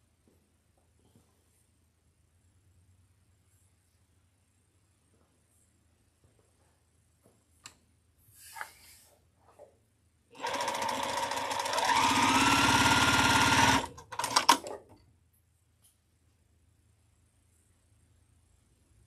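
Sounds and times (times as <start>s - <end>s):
sewing machine stitching: 10.4s - 14.9s.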